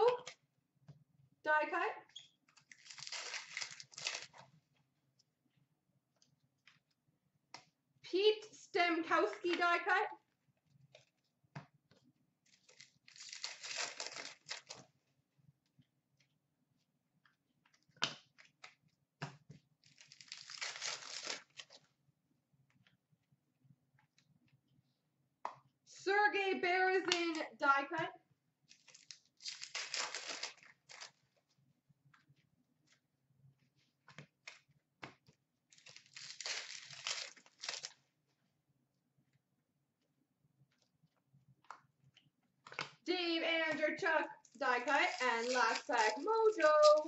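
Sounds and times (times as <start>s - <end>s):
wrapper tearing open: 2.6s - 4.4s, 12.5s - 14.8s, 19.8s - 21.8s, 28.7s - 31.2s, 35.7s - 38.0s, 44.6s - 47.0s
plastic wrapper crinkling: 2.6s - 4.5s, 12.5s - 14.8s, 19.8s - 21.8s, 28.7s - 31.3s, 35.7s - 38.1s, 43.7s - 47.0s.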